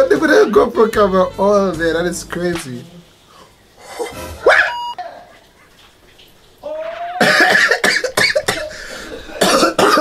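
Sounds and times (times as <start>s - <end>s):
man's voice in choppy bursts: 0.0s - 3.1s.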